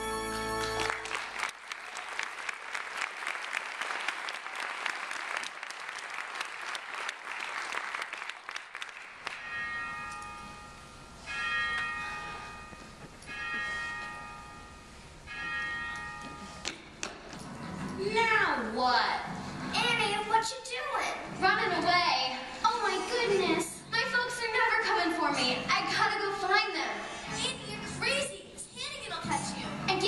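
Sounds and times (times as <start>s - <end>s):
audience applauding: 0.3s - 9.5s
bell-like chime: 9.4s - 17.9s.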